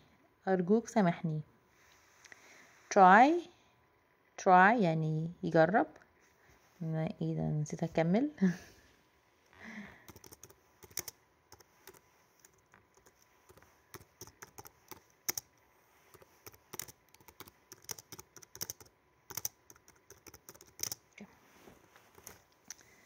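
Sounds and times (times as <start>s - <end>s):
laptop keyboard typing: 10.0s - 21.1s, 22.0s - 22.4s.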